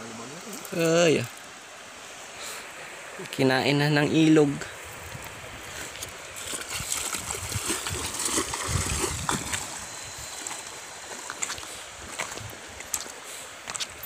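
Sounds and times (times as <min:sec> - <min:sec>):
river running water: 0:00.0 - 0:14.0
water splashing around wading legs: 0:05.1 - 0:14.0.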